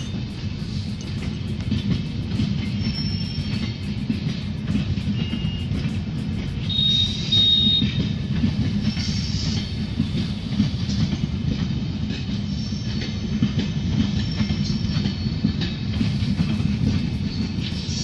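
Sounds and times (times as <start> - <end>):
train wheels rumbling on track: 0.0 - 18.0
wheel squeal: 2.4 - 6.0, 6.6 - 9.8.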